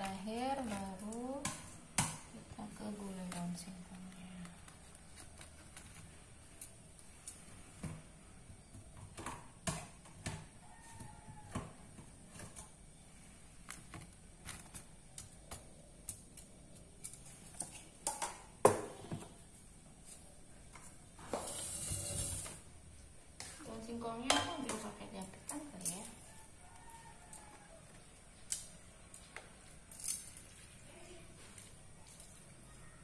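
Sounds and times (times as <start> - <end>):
tongs clicking on plastic containers: 0.0 - 2.2, 24.2 - 30.5.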